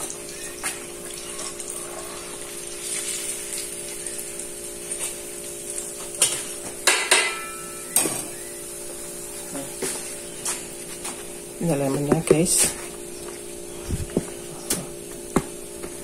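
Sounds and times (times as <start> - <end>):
chicken deep-frying sizzle: 0.0 - 11.6.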